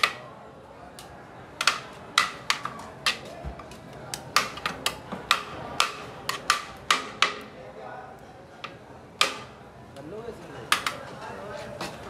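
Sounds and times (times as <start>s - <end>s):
metal utensils clanking on pots: 1.6s - 3.3s, 4.2s - 7.4s, 10.7s - 11.2s.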